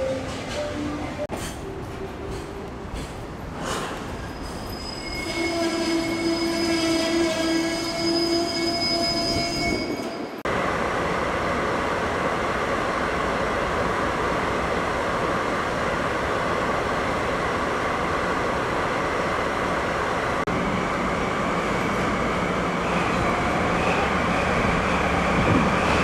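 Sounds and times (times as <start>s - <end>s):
train wheels squealing on rails: 0.0s - 10.4s.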